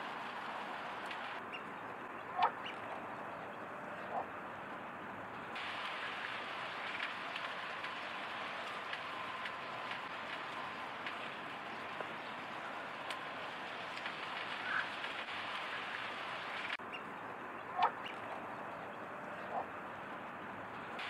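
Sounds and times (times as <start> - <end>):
faint scattered clicks: 0.0 - 4.3, 5.4 - 17.1
outdoor background hiss: 0.0 - 21.0.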